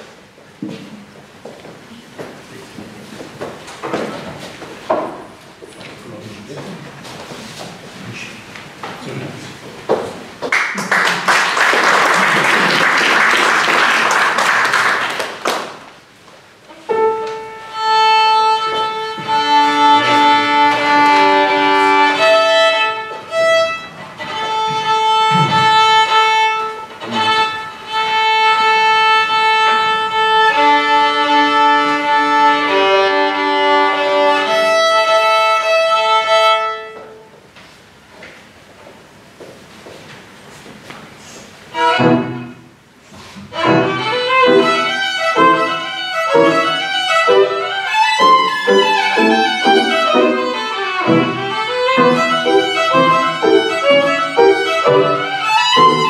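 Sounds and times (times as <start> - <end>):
audience applauding: 10.5 - 15.9
piano accompaniment: 16.7 - 37.3, 41.7 - 42.8, 43.5 - 56.0
slow violin melody: 16.7 - 37.4, 41.7 - 42.7, 43.5 - 56.0.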